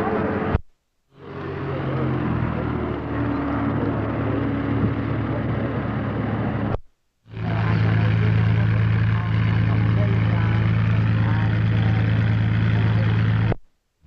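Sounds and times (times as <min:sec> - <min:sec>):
aircraft piston engine: 0:07.4 - 0:13.6.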